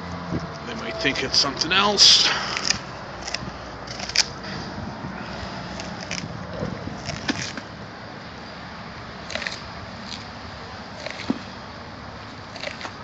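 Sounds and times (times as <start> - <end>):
steady background noise: 0.0 - 13.0
dog chewing and tearing: 5.8 - 7.6, 9.2 - 10.3, 10.9 - 11.5, 12.3 - 13.0.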